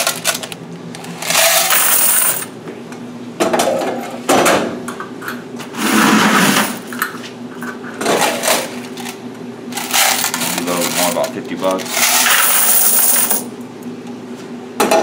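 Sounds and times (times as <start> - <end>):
coins pouring into a bucket: 1.3 - 2.5, 9.8 - 13.5.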